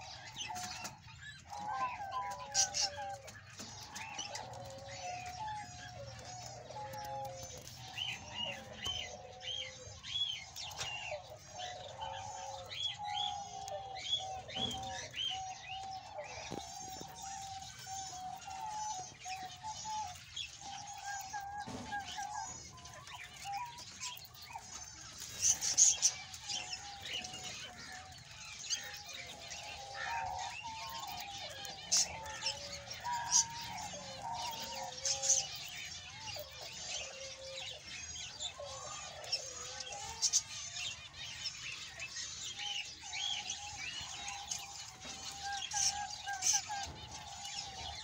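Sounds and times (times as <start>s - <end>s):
budgerigars chirping and chattering: 0.0s - 48.0s.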